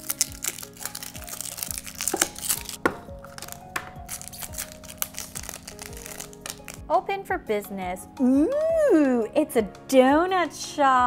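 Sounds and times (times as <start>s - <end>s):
plastic wrapping crinkling and tearing: 0.0s - 6.9s
background music with held notes: 0.0s - 11.0s.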